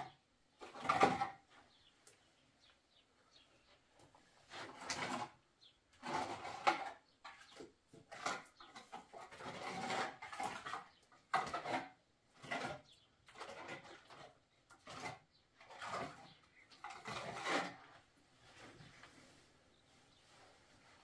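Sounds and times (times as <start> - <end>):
plaster scraping onto wall: 0.6 - 1.5, 4.5 - 5.4, 6.0 - 18.9.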